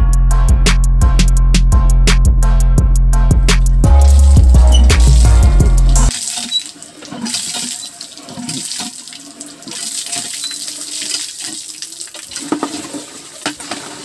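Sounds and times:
background music: 0.0s - 6.1s
water gushing from pump spout: 4.0s - 14.0s.

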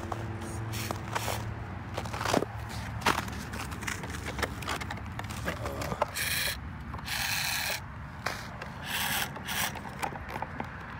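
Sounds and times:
rc truck motor whining: 6.1s - 9.9s.

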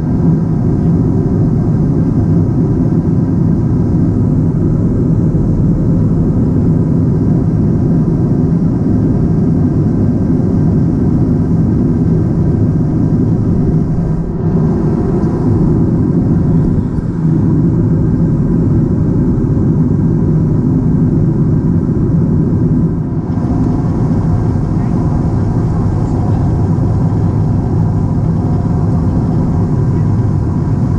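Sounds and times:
jet engine drone: 0.0s - 30.9s
rushing airflow: 11.7s - 20.9s, 22.2s - 30.9s.

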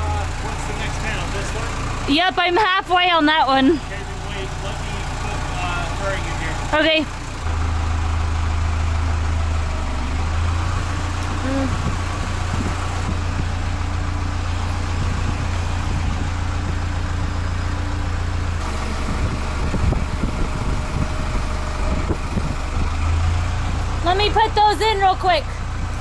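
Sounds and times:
forklift engine idling: 0.0s - 26.0s.

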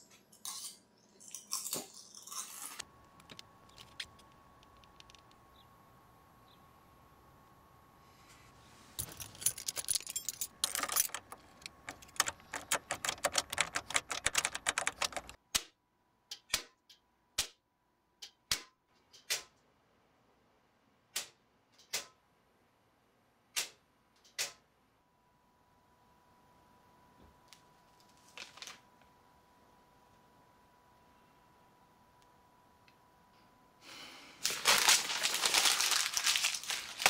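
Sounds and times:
circuit breakers clicking: 9.5s - 15.7s.

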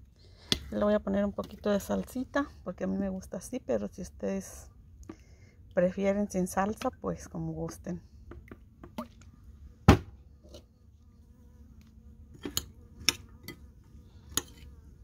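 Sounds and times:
bee buzzing: 9.0s - 15.0s.

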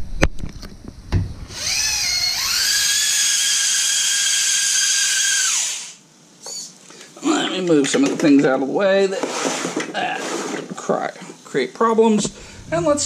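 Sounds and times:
electric motor whining: 1.5s - 6.0s.

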